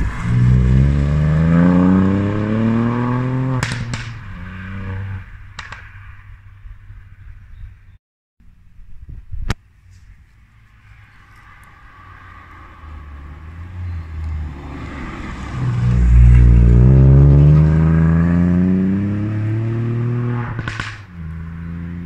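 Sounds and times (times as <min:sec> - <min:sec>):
car engine accelerating hard: 0:00.0 - 0:05.2, 0:12.4 - 0:22.0.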